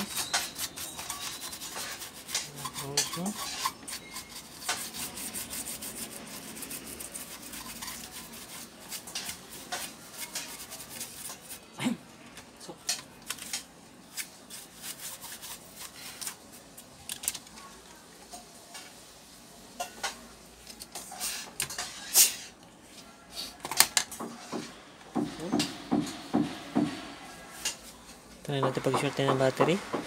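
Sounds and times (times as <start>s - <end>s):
brush scrubbing circuit board: 0.0s - 11.7s, 14.5s - 15.9s.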